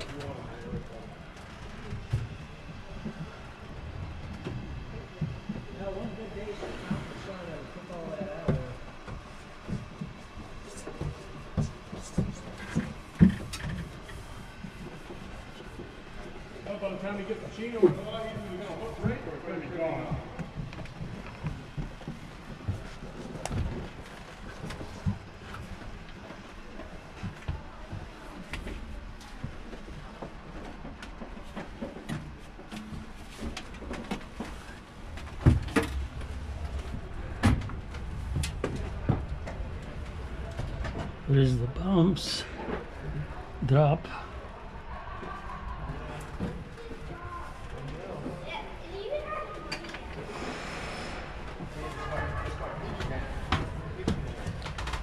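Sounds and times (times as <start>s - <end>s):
faint steady background noise: 0.0s - 55.0s
low rumble: 34.6s - 41.8s.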